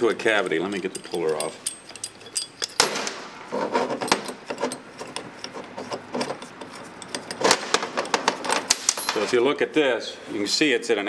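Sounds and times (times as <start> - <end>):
metal clatter: 0.4 - 9.4
metal puller clinking and rattling: 0.5 - 6.4, 7.0 - 9.4.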